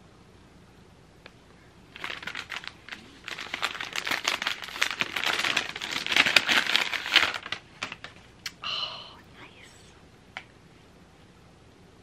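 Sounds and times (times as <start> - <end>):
paper bag crinkling: 1.9 - 8.3.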